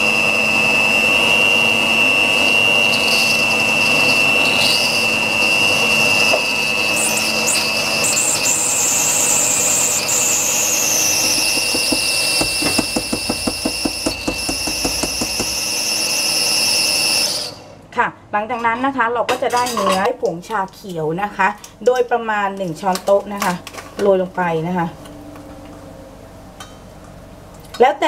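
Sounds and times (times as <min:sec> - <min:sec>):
electric hand mixer whine: 0:00.0 - 0:17.8.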